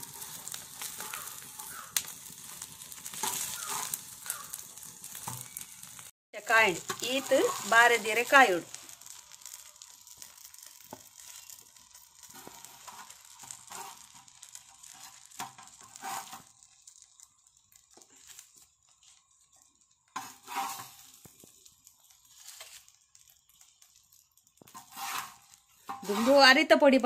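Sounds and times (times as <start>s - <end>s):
metal spatula scraping: 0.0s - 6.0s, 6.7s - 16.6s, 18.2s - 21.2s, 22.2s - 23.2s, 24.7s - 26.7s
leaf rustling: 0.0s - 9.8s, 20.3s - 23.8s
fish sizzling on a pan: 0.0s - 27.0s.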